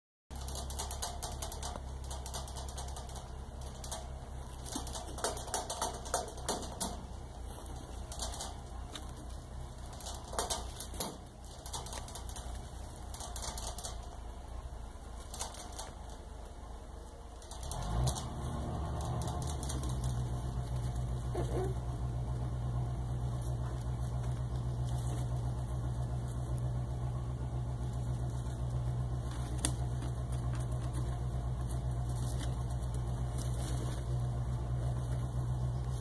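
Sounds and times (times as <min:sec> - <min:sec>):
steady low hum: 0:00.3 - 0:36.0
rustling in wood shavings and hay: 0:06.5 - 0:13.4, 0:17.4 - 0:36.0.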